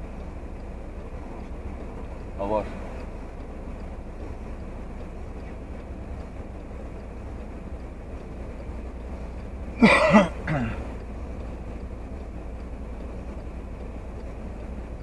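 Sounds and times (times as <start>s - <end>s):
car cabin low rumble: 0.0s - 15.0s.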